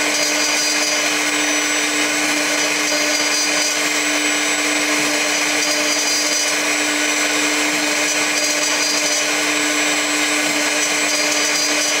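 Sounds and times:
milling machine cutting metal: 0.0s - 12.0s.

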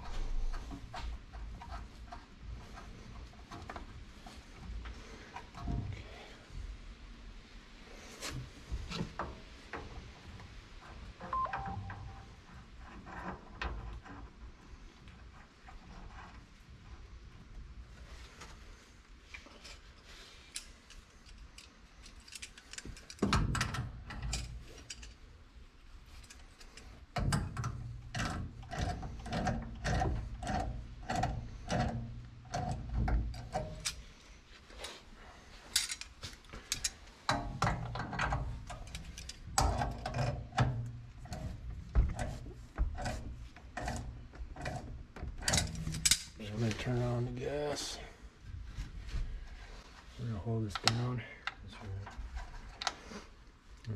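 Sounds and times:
metal tool clicking and scraping: 43.8s - 46.4s.

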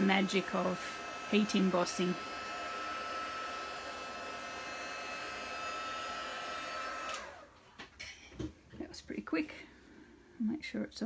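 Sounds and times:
heat gun blowing with whine: 0.0s - 7.6s.

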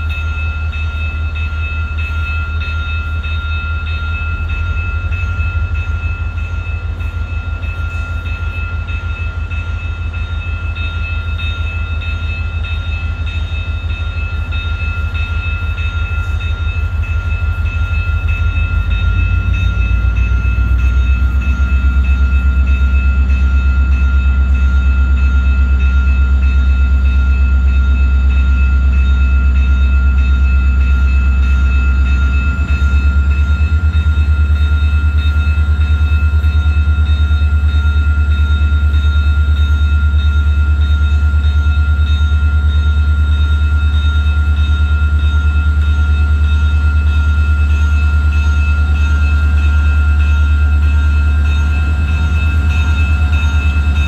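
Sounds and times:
diesel locomotive engine rumble: 0.0s - 54.0s
high whine: 45.1s - 54.0s.

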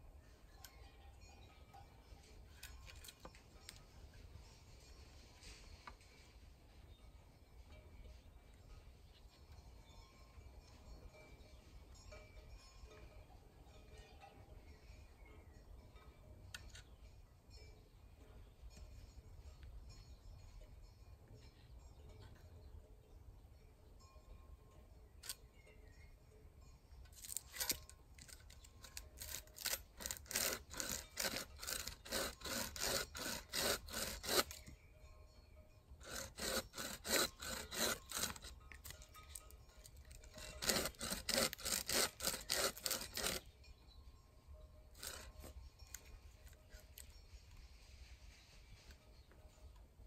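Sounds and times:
hand saw cutting wood: 27.2s - 34.7s, 36.0s - 39.4s, 40.1s - 43.5s, 45.0s - 45.6s.

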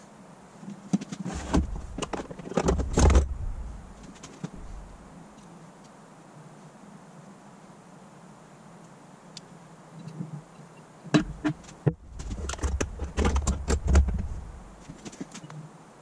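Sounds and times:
low rumble: 2.8s - 5.1s.

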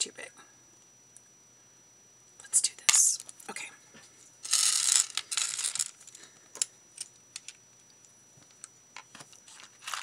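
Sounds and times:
beads clicking: 4.4s - 8.0s.

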